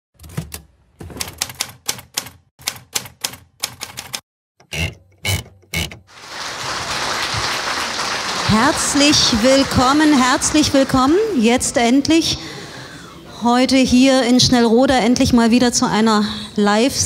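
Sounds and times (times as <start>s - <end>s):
typewriter keys clacking: 1.2s - 4.2s
audience applause: 6.1s - 11.8s.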